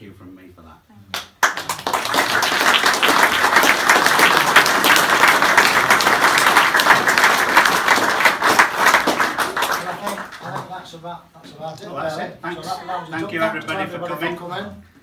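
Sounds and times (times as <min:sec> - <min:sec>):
audience applauding: 0:01.4 - 0:10.7.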